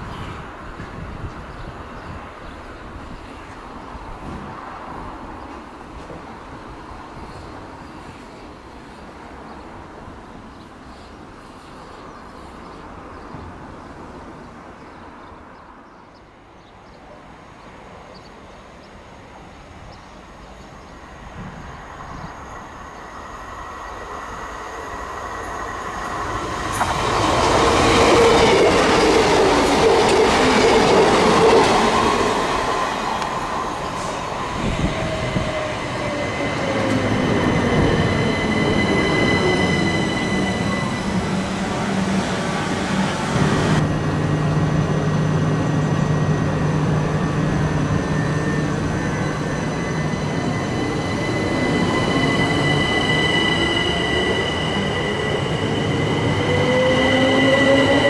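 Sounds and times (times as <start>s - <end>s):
passenger train approaching: 0.0s - 58.0s
high wheel squealing: 46.2s - 58.0s.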